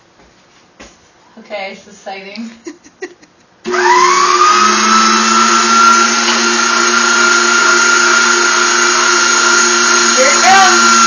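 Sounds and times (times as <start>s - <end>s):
electric strainer motor whine: 3.7s - 11.0s.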